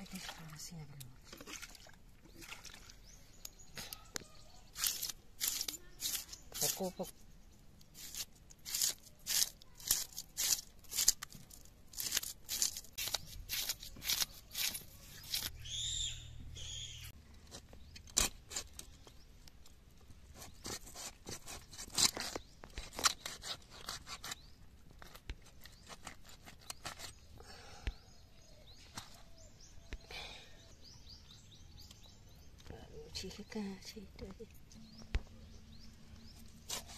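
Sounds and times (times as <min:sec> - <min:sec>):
fish scraped on a blade: 0:04.7 - 0:06.9, 0:36.6 - 0:36.9.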